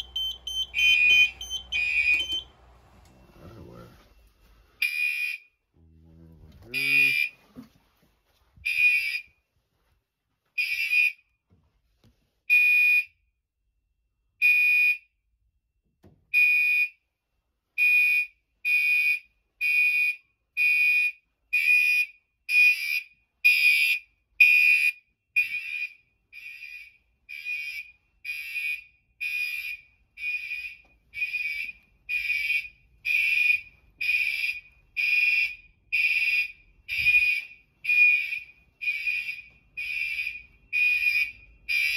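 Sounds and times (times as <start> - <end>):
fire alarm horn pulses: 0.0 - 5.6, 6.7 - 7.4, 17.8 - 41.9.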